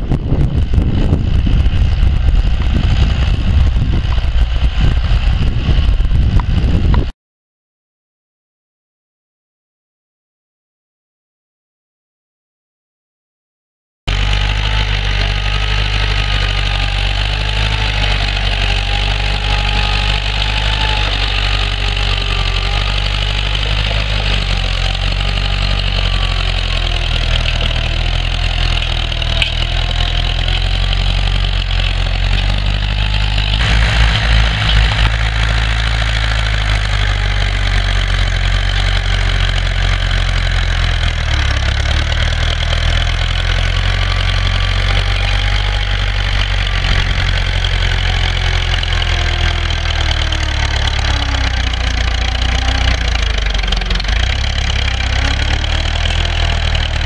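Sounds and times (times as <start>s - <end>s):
low thumping: 0.0s - 7.1s, 32.4s - 38.0s
tractor diesel engine under load: 0.0s - 7.1s, 14.1s - 57.0s.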